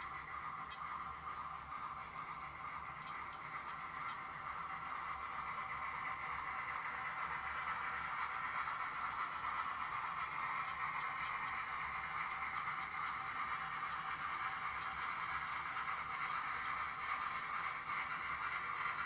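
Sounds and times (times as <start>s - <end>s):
model train whirring: 0.0s - 19.0s.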